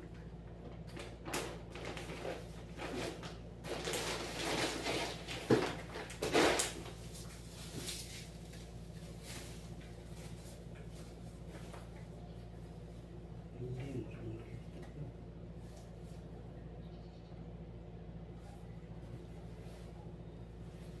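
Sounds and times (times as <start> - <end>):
faint steady hum: 0.0 - 21.0
plastic bag rustling and crinkling: 0.7 - 12.0.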